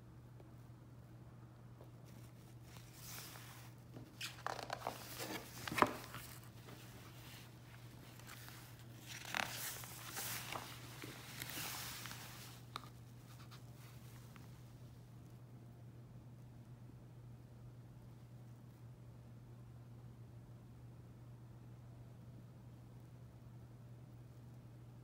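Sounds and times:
faint steady hum: 0.0s - 25.0s
book pages turning: 2.0s - 14.5s.

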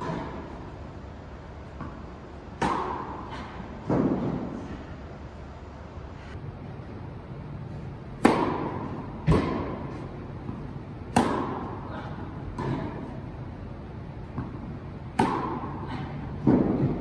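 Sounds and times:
racket striking tennis ball: 0.0s - 0.6s, 1.7s - 4.8s, 8.1s - 13.2s, 14.3s - 17.0s
ball bouncing on hard court: 8.2s - 11.8s, 14.2s - 15.8s.

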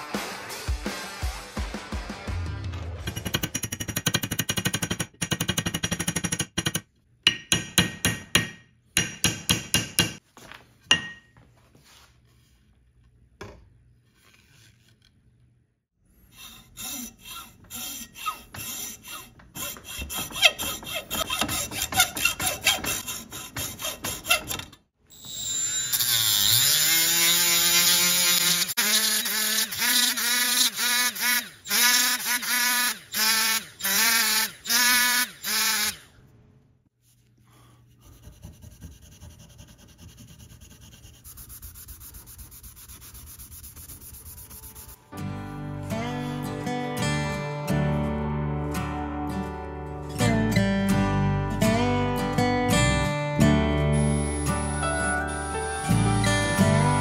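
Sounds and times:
rotary grinder grinding steel: 16.3s - 36.1s
rhythmic sanding: 37.9s - 45.1s.

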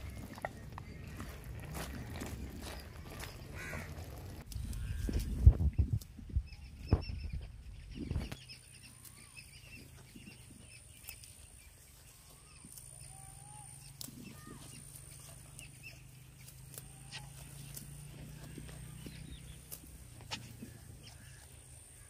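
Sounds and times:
goat tearing and chewing plants: 0.0s - 6.4s, 9.8s - 22.0s.

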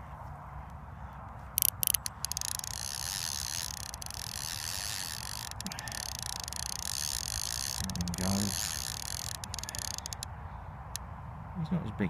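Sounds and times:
fishing reel ticking: 1.6s - 10.3s.

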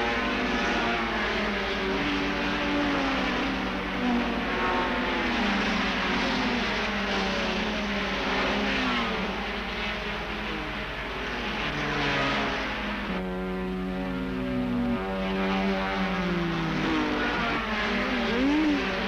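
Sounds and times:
racing car engines revving: 0.0s - 19.0s.

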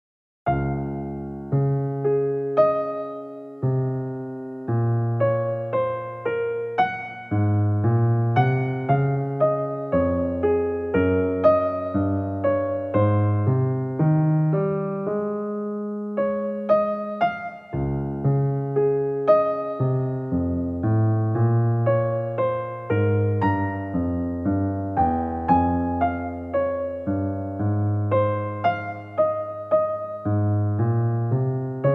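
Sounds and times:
gentle piano music: 0.5s - 31.9s.

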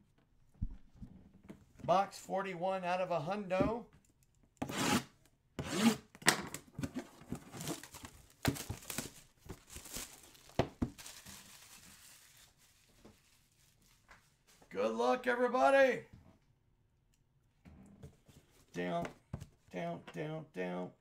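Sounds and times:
wrapping tearing and crinkling: 7.4s - 14.6s.

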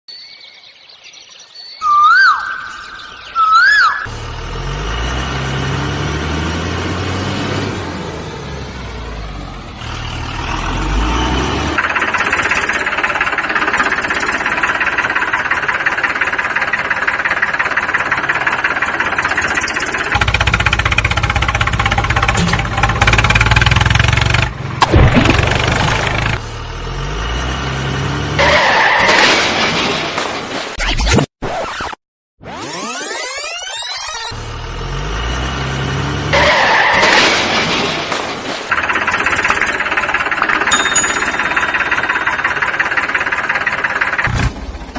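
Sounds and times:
vehicle engine revving: 4.1s - 28.9s, 34.3s - 37.7s.

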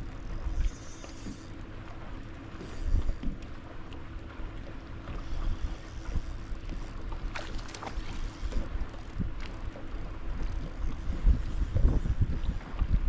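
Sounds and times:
faint steady hum: 0.0s - 13.0s
waves lapping at boat hull: 0.0s - 13.0s
wind buffeting microphone: 5.2s - 13.0s.

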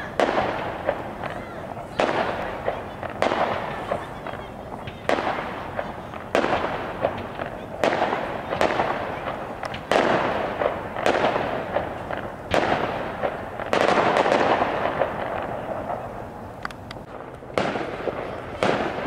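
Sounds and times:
fireworks bursting: 0.0s - 19.0s
small pops: 9.6s - 10.0s.

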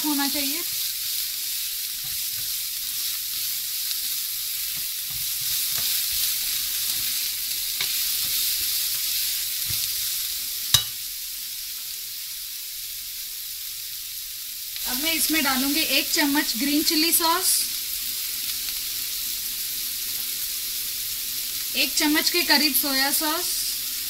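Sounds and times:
vegetables sizzling in hot oil: 0.0s - 24.0s
spatula stirring and scraping: 0.6s - 10.0s.

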